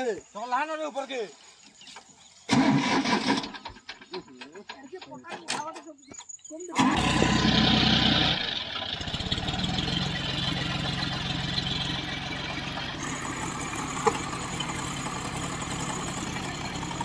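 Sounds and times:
tractor diesel engine running: 2.5s - 5.2s, 6.7s - 17.0s.

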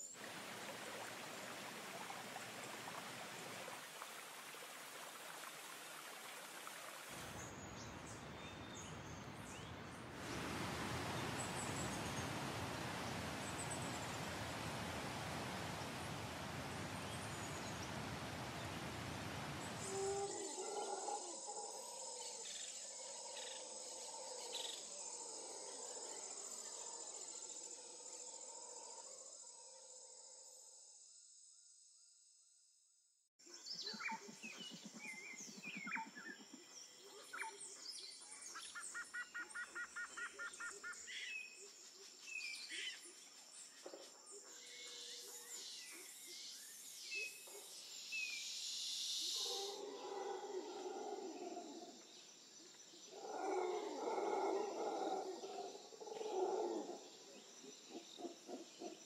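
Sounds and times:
birds chirping and trilling: 53.0s - 59.0s.

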